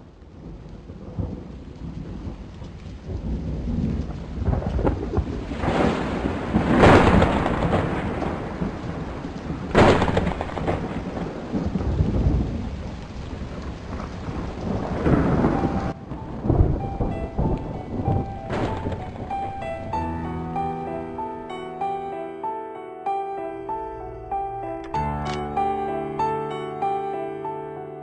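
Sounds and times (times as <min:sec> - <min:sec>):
steady rain: 0:00.0 - 0:22.1
rumbling thunder: 0:00.1 - 0:21.5
thunder crack: 0:00.3 - 0:21.5.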